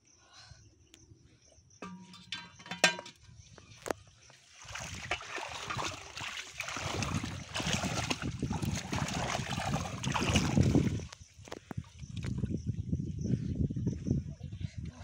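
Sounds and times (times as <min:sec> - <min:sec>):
water sloshing and splashing: 0:04.4 - 0:12.6.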